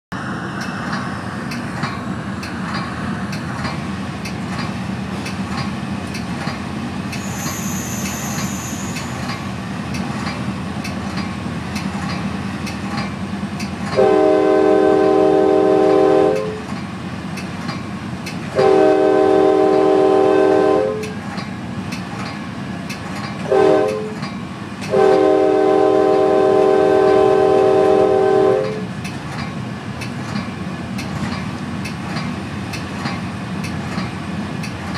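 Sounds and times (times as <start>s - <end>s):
train wheels rumbling on rails: 0.1s - 34.9s
train horn blasts: 14.0s - 16.6s, 18.5s - 21.2s, 23.5s - 24.2s, 24.9s - 28.9s.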